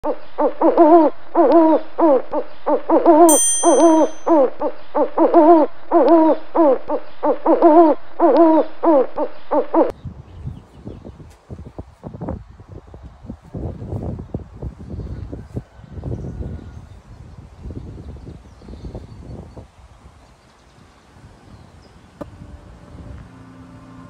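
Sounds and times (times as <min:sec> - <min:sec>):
owl hooting: 0:00.1 - 0:09.9
electronic chime: 0:03.3 - 0:04.5.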